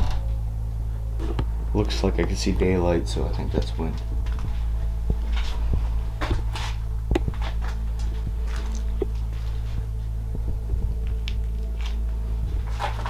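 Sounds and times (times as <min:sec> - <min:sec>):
steady low drone: 0:00.0 - 0:13.0
footsteps on concrete floor: 0:04.0 - 0:13.0.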